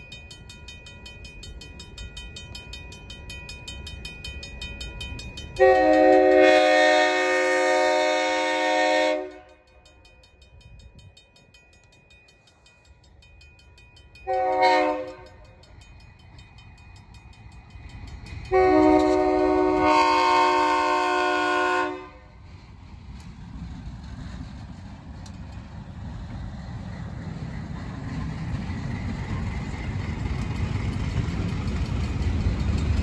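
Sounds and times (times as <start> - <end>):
locomotive air horn blast: 5.6 - 9.5, 14.3 - 15.2, 18.5 - 22.3.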